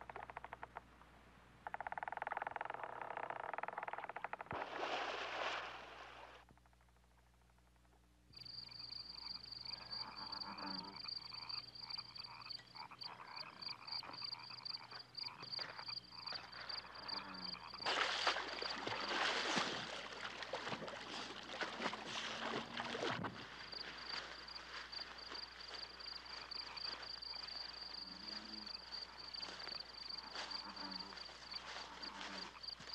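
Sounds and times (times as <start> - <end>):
frogs croaking: 0.0 - 0.8, 1.6 - 4.5, 6.6 - 32.9
person swimming splashing: 4.5 - 6.4, 17.8 - 27.8.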